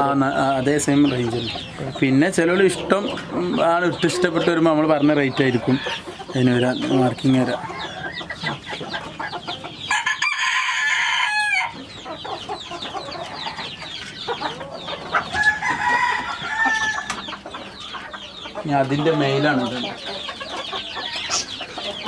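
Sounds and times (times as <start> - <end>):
birds clucking and chirping: 0.0 - 22.0
rooster crowing: 9.9 - 11.8, 15.3 - 17.2.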